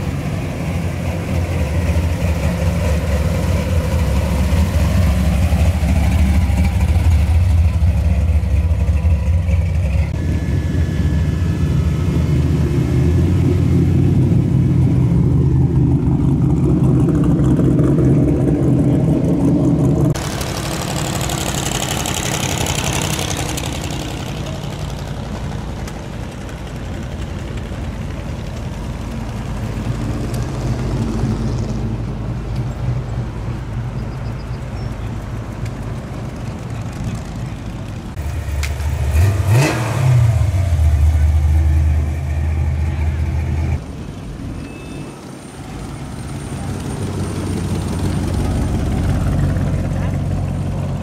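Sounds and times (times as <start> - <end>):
car engine deep rumble: 0.0 - 44.6
cars passing: 0.0 - 51.0.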